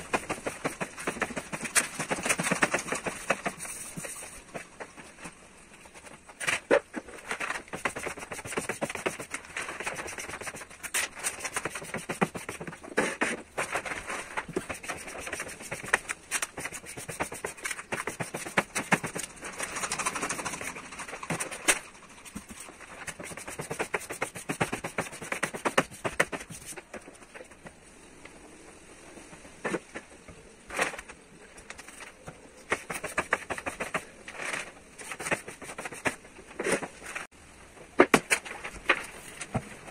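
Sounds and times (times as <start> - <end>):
squeegee scraping vinyl film: 0.0 - 5.0, 6.3 - 27.6, 31.7 - 37.3.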